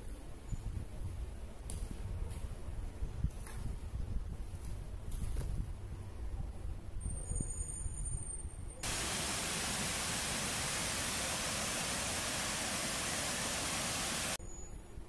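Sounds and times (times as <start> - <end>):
river water rushing over rapids: 8.8 - 14.4.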